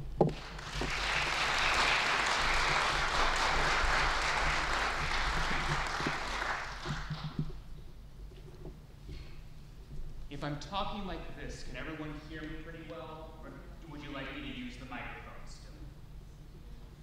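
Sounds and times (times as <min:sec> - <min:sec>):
audience applauding: 0:00.3 - 0:07.5.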